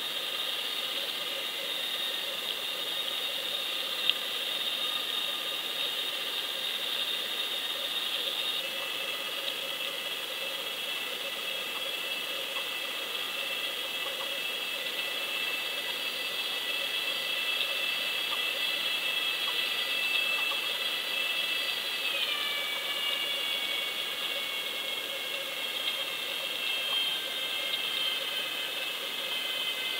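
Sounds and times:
faint hiss: 0:00.0 - 0:29.9
underwater boat motor whine: 0:00.0 - 0:29.9.

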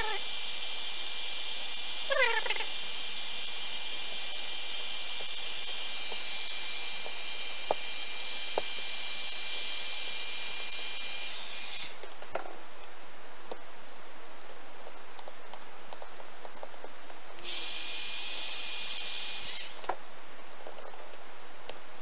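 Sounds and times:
heat gun hissing and whining: 0:00.0 - 0:12.0, 0:17.4 - 0:19.8.

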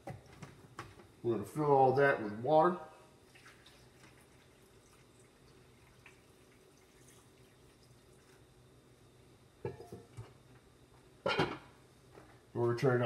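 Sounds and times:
water trickling and dripping: 0:03.2 - 0:08.4.

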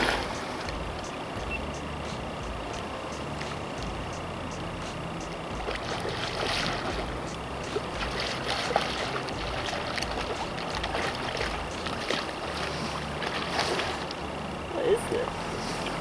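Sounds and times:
river current rushing: 0:00.0 - 0:16.0
fish splashing at surface: 0:05.6 - 0:14.2.

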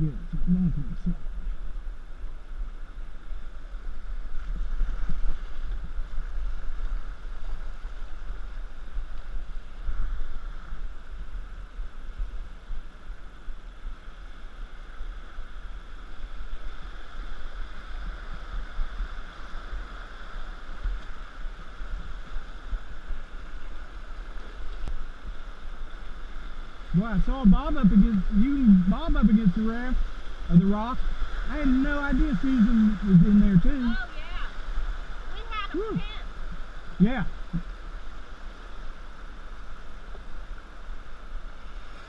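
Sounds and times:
deep rumble: 0:00.0 - 0:02.5
river whitewater rushing: 0:26.5 - 0:42.0.

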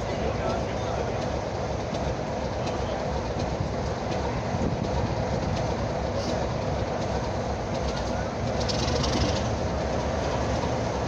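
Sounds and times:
diesel locomotive engine idling: 0:00.0 - 0:11.0.

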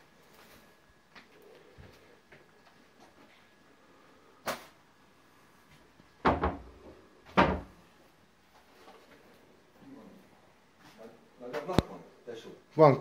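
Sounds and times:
window knocking against frame: 0:06.2 - 0:06.7.

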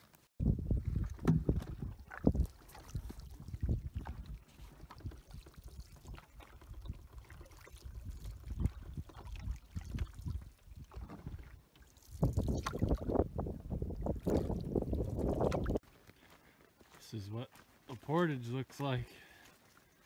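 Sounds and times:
paddles stroking through water: 0:00.0 - 0:20.0
wind gusts on microphone: 0:00.4 - 0:07.1, 0:07.8 - 0:11.5, 0:12.2 - 0:15.8.

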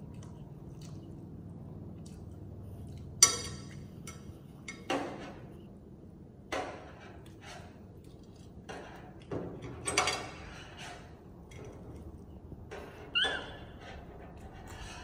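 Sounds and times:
short high squeak: 0:13.1 - 0:13.8.

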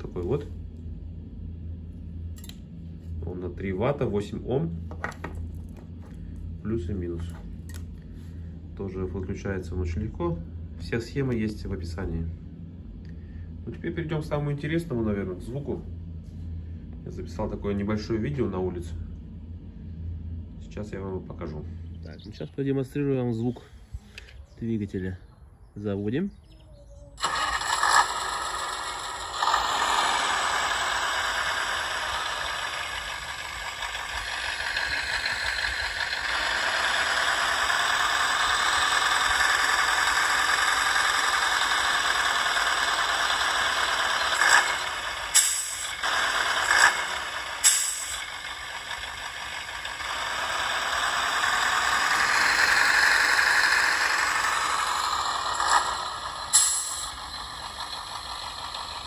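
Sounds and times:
truck engine sound revving: 0:27.2 - 0:59.0.

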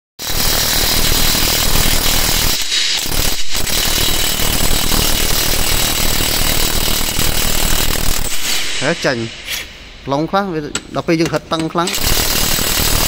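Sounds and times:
impact wrench hammering: 0:00.2 - 0:09.8, 0:10.7 - 0:13.0.

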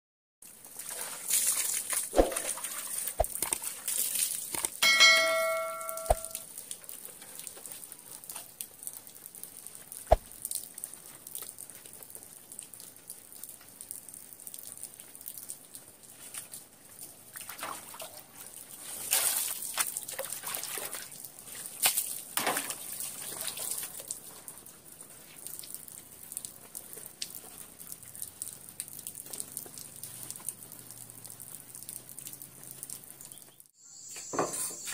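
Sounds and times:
water splashing and trickling: 0:00.4 - 0:33.7
short bell-like chime: 0:04.8 - 0:06.4.

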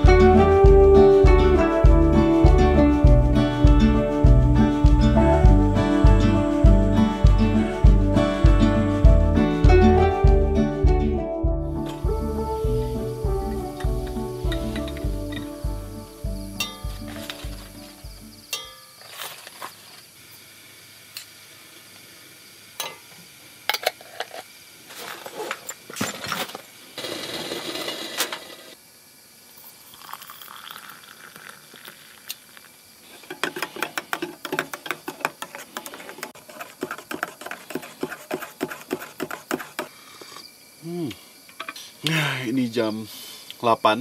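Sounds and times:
hot water poured into mug: 0:29.6 - 0:32.7.

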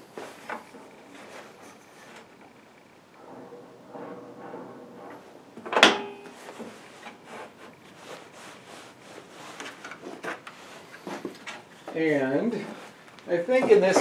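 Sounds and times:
wooden board sliding on table: 0:03.1 - 0:11.5.

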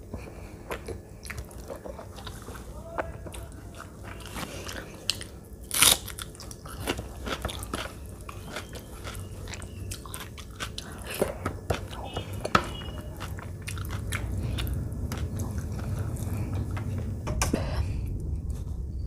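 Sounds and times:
wet chewing sounds: 0:00.2 - 0:17.0
loud crunchy bite: 0:04.2 - 0:11.2.

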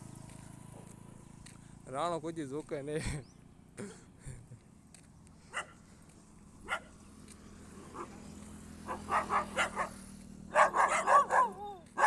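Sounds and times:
dogs barking: 0:05.5 - 0:05.9, 0:06.6 - 0:07.0, 0:07.8 - 0:12.0.

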